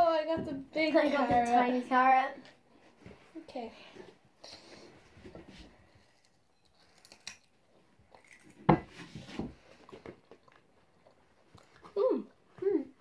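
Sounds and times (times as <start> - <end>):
carrots being bitten and chewed: 6.0 - 12.6.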